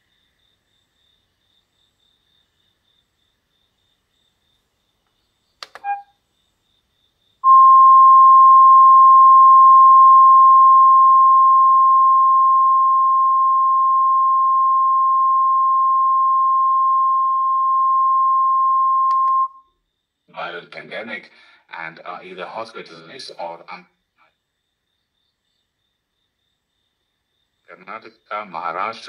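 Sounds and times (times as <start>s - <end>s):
button click and blip: 5.6s - 6.1s
steady test tone beep: 5.8s - 6.1s, 7.4s - 19.6s.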